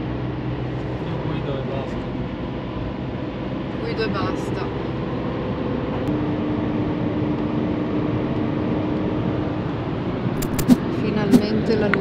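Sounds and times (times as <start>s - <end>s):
car engine and road noise: 0.0s - 12.0s
sharp clicks: 10.4s - 11.4s.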